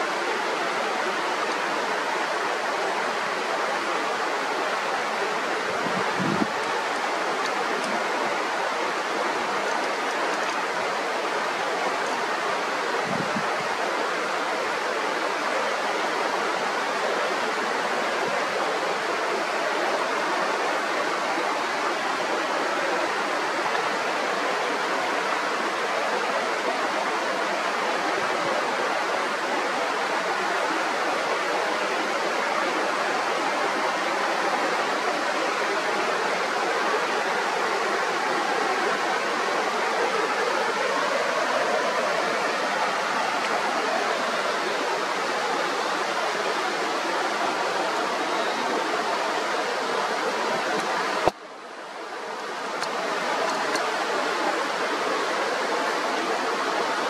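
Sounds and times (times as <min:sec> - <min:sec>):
river rushing: 0:00.0 - 0:57.0.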